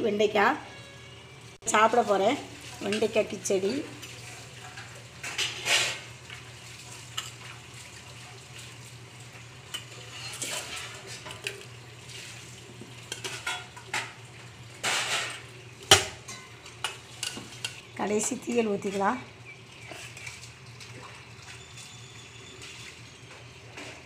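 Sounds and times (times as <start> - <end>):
steel spoons clinking on bowls: 13.1 - 14.1, 15.1 - 17.8.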